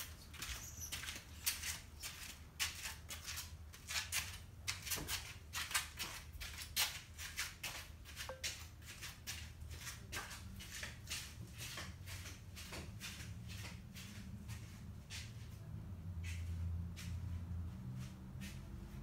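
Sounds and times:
low steady hum: 8.3s - 8.5s.

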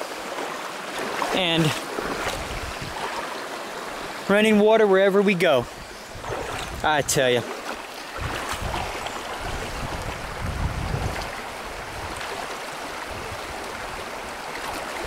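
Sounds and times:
creek running over rocks: 0.0s - 15.0s
wind rumble on microphone: 2.0s - 3.1s, 5.6s - 7.2s, 8.1s - 14.3s.

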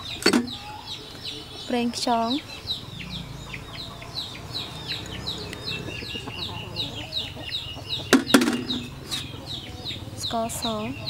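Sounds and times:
chicks peeping: 0.0s - 11.0s
sharp knocks: 8.1s - 9.0s.

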